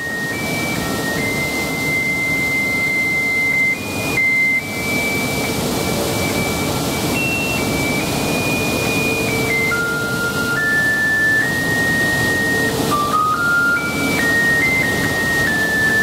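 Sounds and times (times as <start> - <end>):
electronic beep tune: 0.0 - 16.0
steady rushing noise: 0.0 - 16.0.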